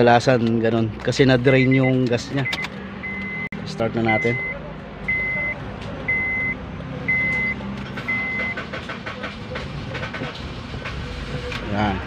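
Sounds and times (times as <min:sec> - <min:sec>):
dashboard warning chime beeps: 0:01.5 - 0:08.6.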